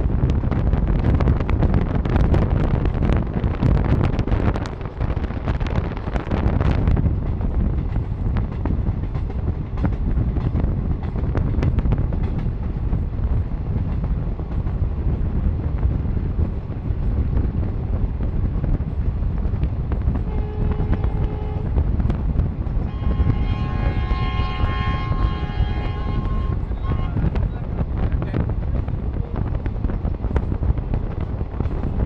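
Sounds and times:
train wheels rumbling on rails: 0:00.0 - 0:32.0
wind buffeting microphone: 0:00.0 - 0:32.0
train horn: 0:20.2 - 0:21.8, 0:22.8 - 0:27.4.

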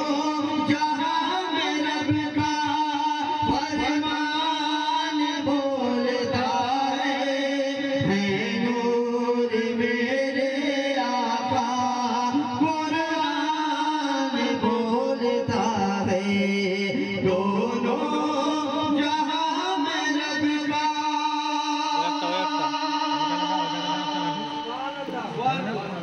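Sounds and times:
men singing over loudspeaker: 0:00.0 - 0:26.0.

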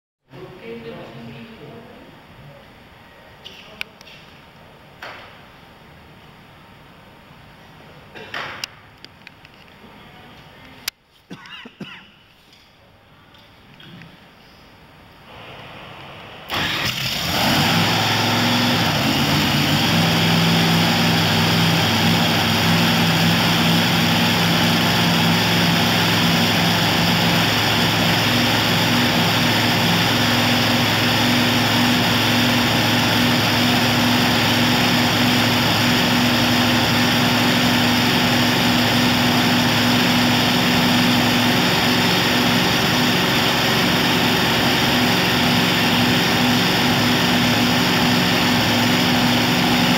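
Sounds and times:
dragster engine starting and idling: 0:15.4 - 0:49.9.

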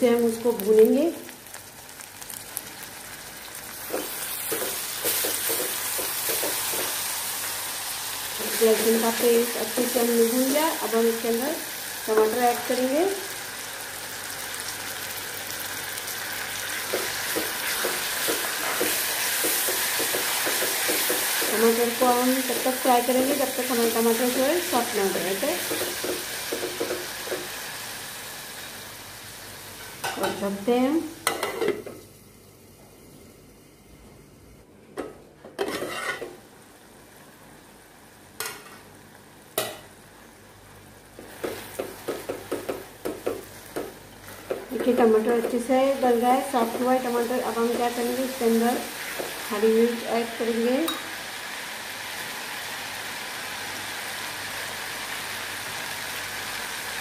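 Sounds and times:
hot oil sizzling in a pot: 0:00.0 - 0:32.7, 0:35.6 - 0:57.0
spatula stirring: 0:03.8 - 0:07.0, 0:35.6 - 0:36.3
spatula scraping a pot: 0:35.6 - 0:36.3.

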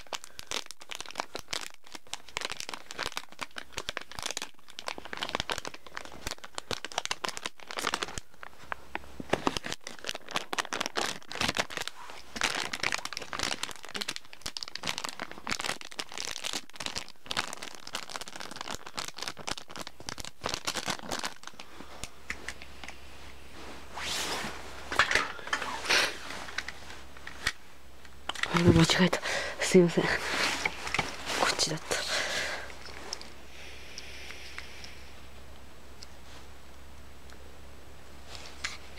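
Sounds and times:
plastic bag crackling: 0:00.0 - 0:22.6, 0:28.2 - 0:33.5.

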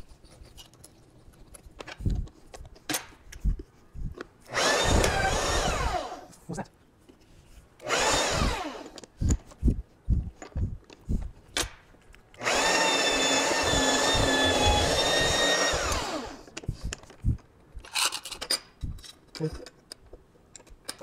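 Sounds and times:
drill boring into steel: 0:04.5 - 0:06.3, 0:07.8 - 0:09.0, 0:12.4 - 0:16.5
drill motor winding down: 0:04.5 - 0:06.3, 0:07.8 - 0:09.1, 0:12.4 - 0:16.5.

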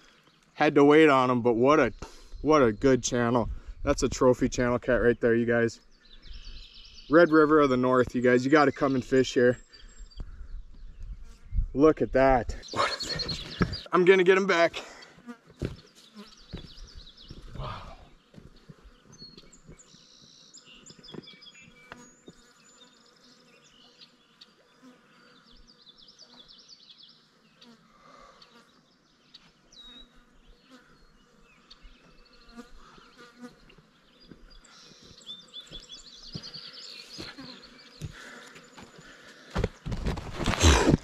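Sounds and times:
birds chirping and trilling: 0:00.0 - 0:41.0
insect buzzing: 0:15.0 - 0:29.0, 0:29.7 - 0:41.0
footsteps: 0:15.4 - 0:19.9, 0:33.7 - 0:41.0.

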